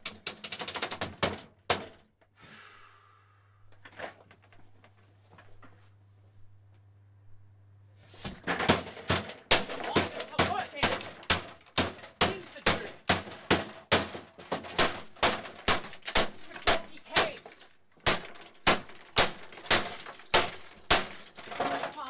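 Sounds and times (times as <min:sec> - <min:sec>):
hammer striking a typewriter: 0:00.0 - 0:02.0, 0:08.6 - 0:22.0
plastic and metal parts cracking: 0:00.0 - 0:02.2, 0:08.4 - 0:22.0.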